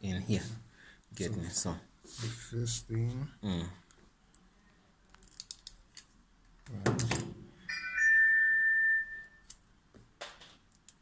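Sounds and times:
steady electronic beep: 0:07.7 - 0:09.5.

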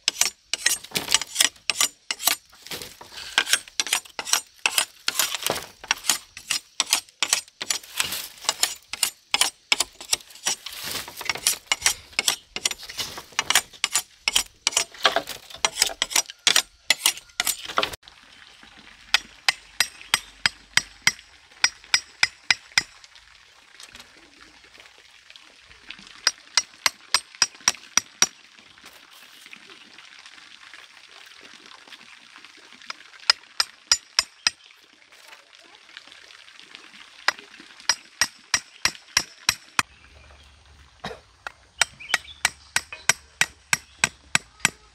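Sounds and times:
knife splitting bamboo: 0:00.0 - 0:18.0.

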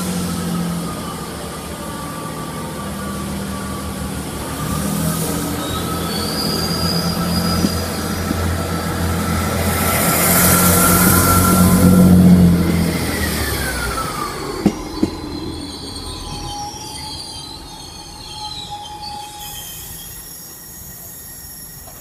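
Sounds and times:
diesel engine hum: 0:00.0 - 0:15.7
rushing hiss: 0:00.0 - 0:22.0
train wheel squeal: 0:00.0 - 0:22.0.

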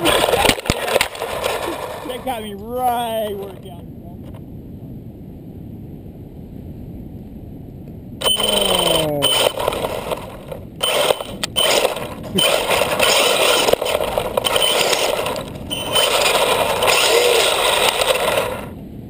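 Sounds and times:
toy car tyres churning wood chips: 0:00.0 - 0:02.3, 0:08.2 - 0:18.7.

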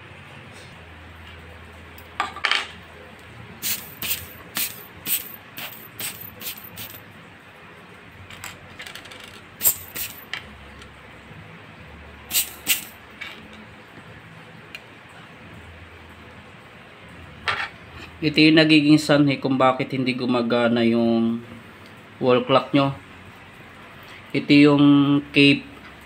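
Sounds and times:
air blower bulb puffing: 0:03.6 - 0:07.0, 0:09.6 - 0:10.3, 0:12.3 - 0:13.0.

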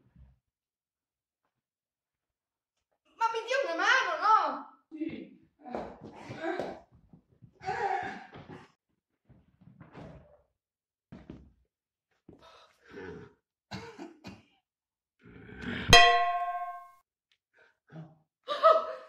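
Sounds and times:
frying pan clang: 0:16.0 - 0:16.9.

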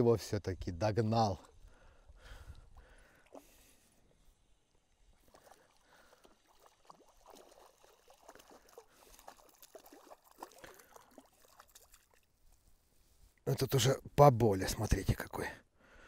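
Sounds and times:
fish splashing in water: 0:05.2 - 0:12.4.

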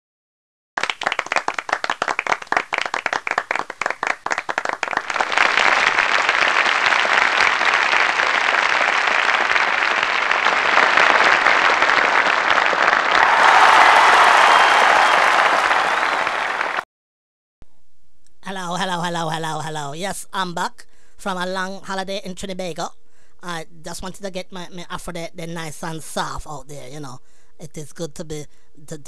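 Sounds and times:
crowd applause: 0:00.8 - 0:16.8.

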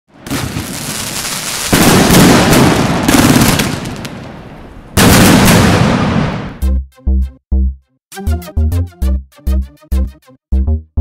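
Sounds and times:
fireworks crackling and popping: 0:00.1 - 0:06.5.

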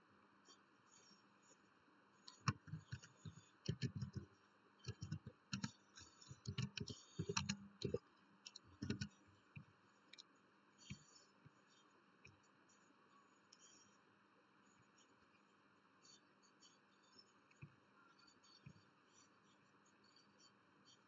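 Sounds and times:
computer keyboard typing: 0:02.3 - 0:09.2.

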